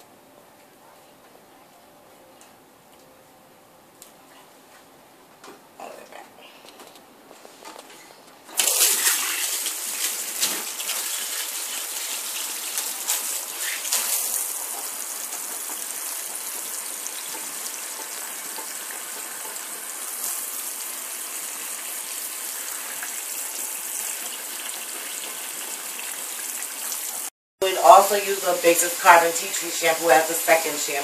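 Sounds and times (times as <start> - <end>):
water spraying into sink: 8.6 - 27.3.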